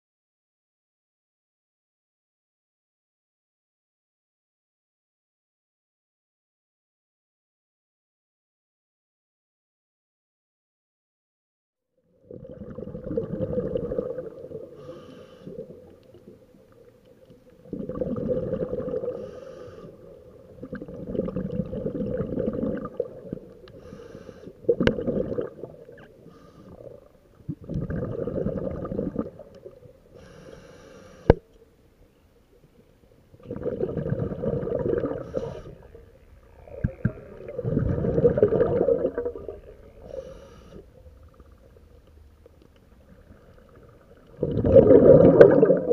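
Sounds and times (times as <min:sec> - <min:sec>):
exhaled bubbles gurgling underwater: 0:12.1 - 0:31.4, 0:33.3 - 0:45.9
regulator inhale hiss: 0:14.7 - 0:16.2, 0:19.0 - 0:20.4, 0:23.7 - 0:24.7, 0:26.1 - 0:27.0, 0:30.1 - 0:31.4, 0:35.2 - 0:36.0, 0:39.8 - 0:41.2.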